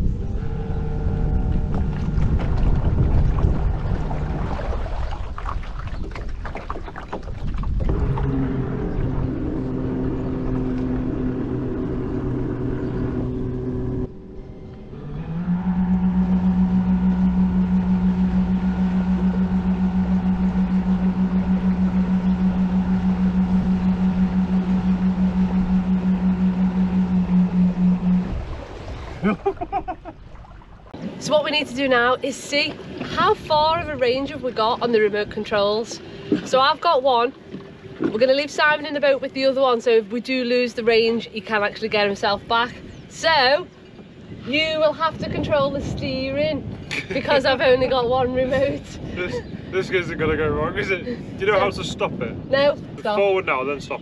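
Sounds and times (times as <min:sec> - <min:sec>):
electric outboard motor humming: 0:00.0 - 0:06.0, 0:07.5 - 0:54.0
wind rumble on microphone: 0:00.0 - 0:54.0
water slapping against boat hull: 0:01.4 - 0:12.0, 0:16.9 - 0:39.8.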